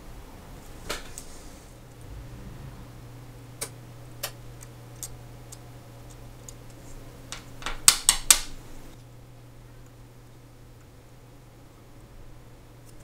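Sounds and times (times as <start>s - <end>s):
low hum: 1.8s - 7.3s.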